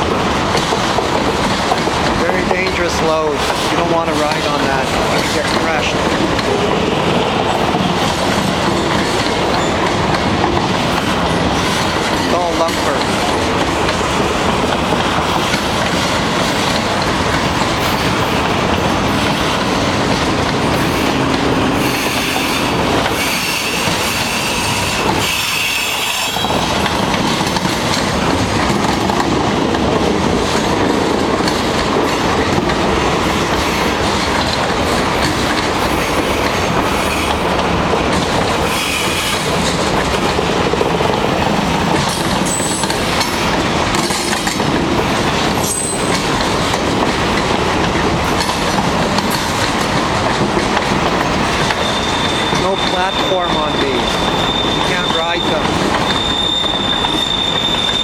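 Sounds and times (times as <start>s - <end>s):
train wheels rumbling on rails: 0.0s - 58.0s
wheel squeal: 21.8s - 26.7s, 42.4s - 43.4s, 45.6s - 46.1s, 51.6s - 58.0s.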